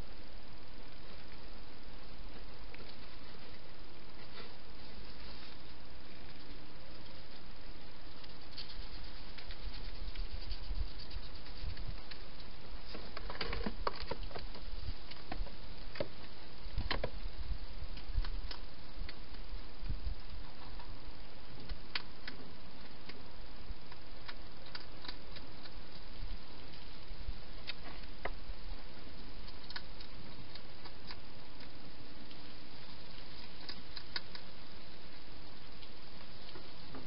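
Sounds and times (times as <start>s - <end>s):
steady hiss: 0.0s - 37.0s
hedgehog munching: 2.7s - 17.1s, 21.5s - 36.6s.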